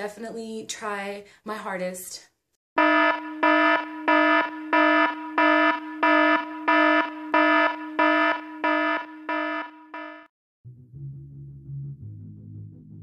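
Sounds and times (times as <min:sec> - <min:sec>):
pulsing electronic alarm buzz: 0:02.8 - 0:10.3.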